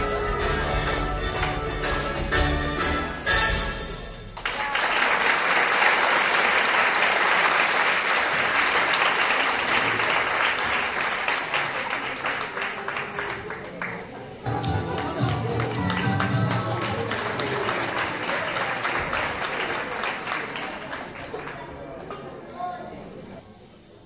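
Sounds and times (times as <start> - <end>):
audience applauding: 4.4 - 22.0
song ending: 14.5 - 17.2.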